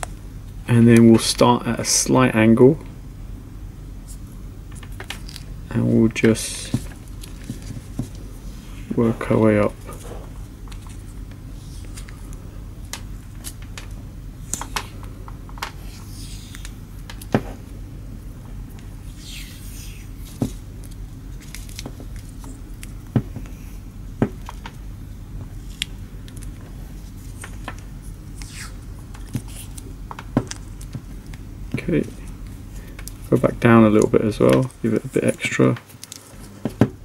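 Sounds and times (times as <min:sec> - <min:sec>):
steady low hum: 0:00.0 - 0:37.0.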